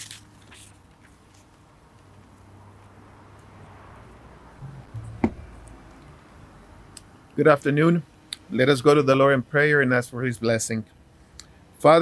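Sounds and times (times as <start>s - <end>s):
low steady hum: 4.0s - 7.4s
soft knock: 4.6s - 5.6s.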